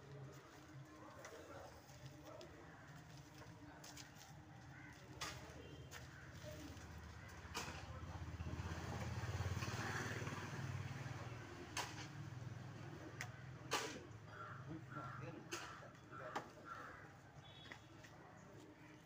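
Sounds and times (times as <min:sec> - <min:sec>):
vehicle engine rumble passing: 0:07.5 - 0:13.1.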